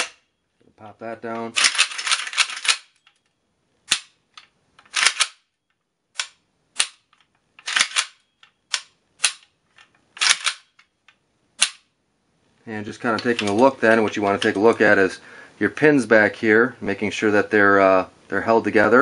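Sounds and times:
pistol action metallic clicks: 0:01.6 - 0:03.2, 0:03.9 - 0:05.5, 0:06.2 - 0:09.5, 0:10.2 - 0:10.9, 0:11.6 - 0:11.9.

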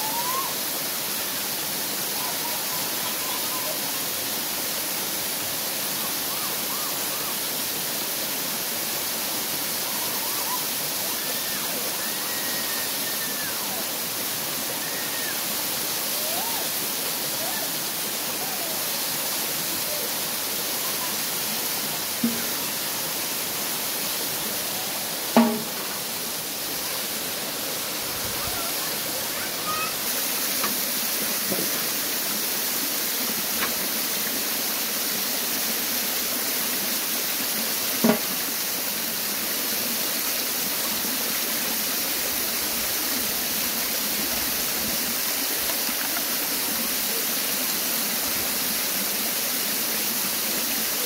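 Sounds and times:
running water rushing: 0:00.0 - 0:51.0
short knocks: 0:25.4 - 0:26.0.

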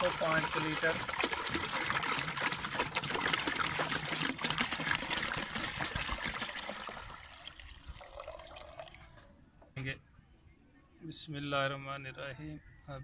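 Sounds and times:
water pouring into a pot: 0:00.0 - 0:09.0.

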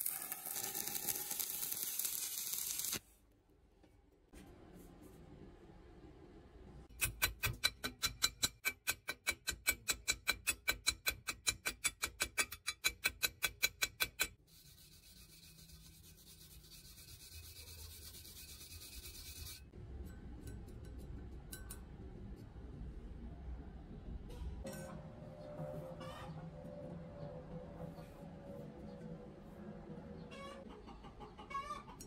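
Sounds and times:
wire brush scrubbing metal: 0:14.5 - 0:19.7.

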